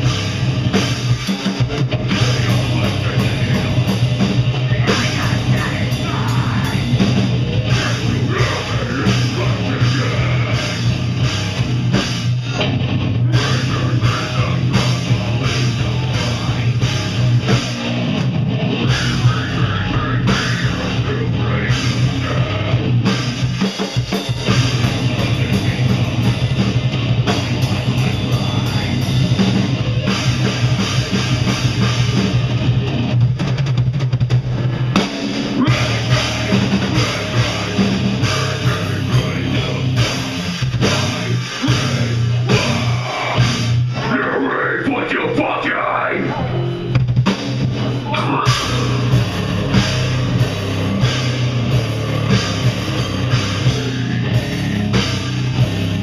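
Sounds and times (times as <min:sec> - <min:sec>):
distorted electric guitar: 0:00.0 - 0:56.0
heavy rock band playing: 0:00.0 - 0:56.0
pounding drum kit: 0:00.0 - 0:56.0.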